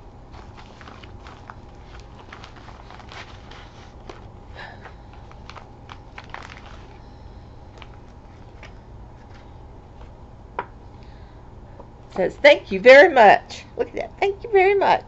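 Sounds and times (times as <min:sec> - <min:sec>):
steady low hum: 0:00.0 - 0:15.0
package rustling: 0:00.3 - 0:07.0, 0:07.7 - 0:10.2.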